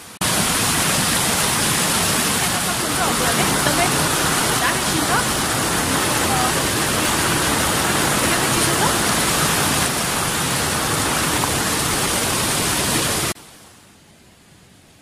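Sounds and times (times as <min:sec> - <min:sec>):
stream rushing over rocks: 0:00.0 - 0:13.6.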